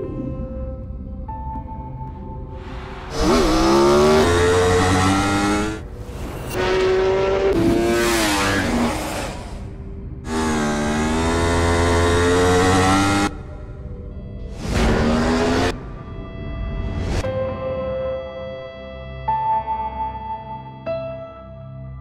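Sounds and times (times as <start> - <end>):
motorcycle engine revving high: 3.1 - 5.9, 6.6 - 9.7, 10.3 - 13.3.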